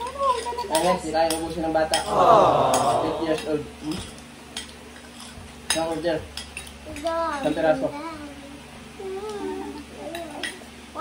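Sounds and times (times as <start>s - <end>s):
short snatches of voice: 2.1s - 3.5s
cutlery clinking on plates: 4.0s - 6.8s.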